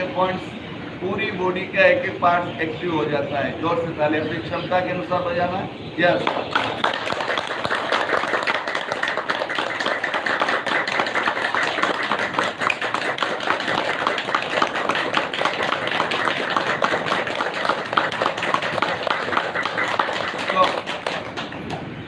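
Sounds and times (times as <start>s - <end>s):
rapid hand claps: 6.2s - 21.9s.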